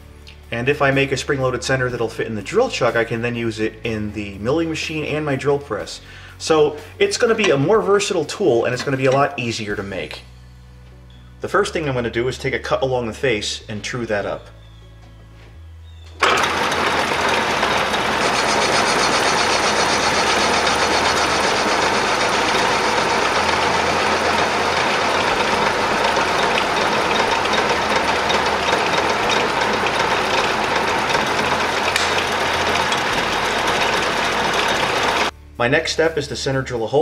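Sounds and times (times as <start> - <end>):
metal lathe cutting steel: 16.2 - 35.3.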